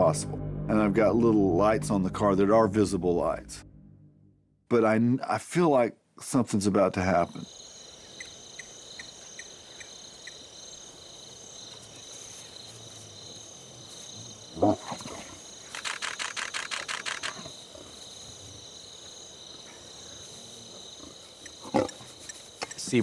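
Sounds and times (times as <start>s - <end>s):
crickets chirring: 7.0s - 23.0s
lion growl: 14.5s - 15.5s, 20.6s - 22.1s.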